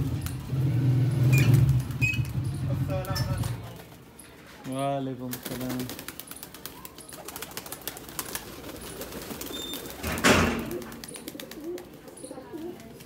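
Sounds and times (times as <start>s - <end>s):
pigeons cooing: 6.0s - 13.0s.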